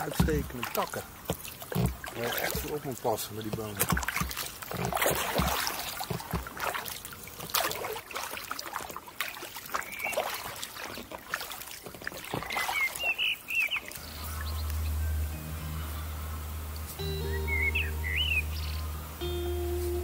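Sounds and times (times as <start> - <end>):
paddle knocking: 0.0 - 7.7
kayak paddle splashing water: 0.0 - 14.7
water dripping: 0.0 - 20.0
birds chirping: 9.7 - 10.6, 12.0 - 20.0
background music: 14.0 - 20.0.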